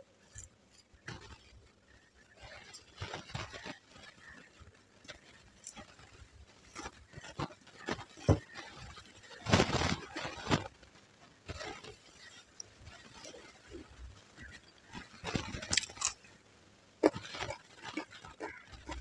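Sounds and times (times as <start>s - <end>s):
fingers mixing rice: 0.0s - 10.7s, 17.0s - 19.0s
chewing: 0.2s - 10.6s, 11.5s - 16.4s, 17.0s - 19.0s.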